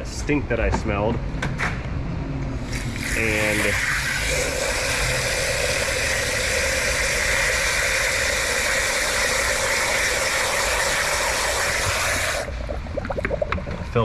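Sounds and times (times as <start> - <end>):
hose water splashing into funnel: 2.7 - 14.0.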